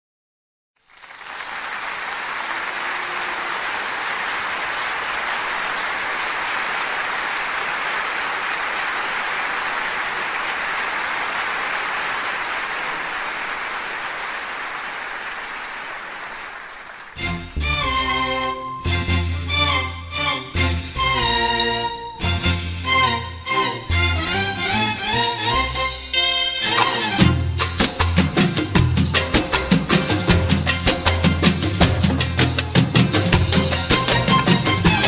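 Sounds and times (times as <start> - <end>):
audience applauding: 0.8 - 17.5.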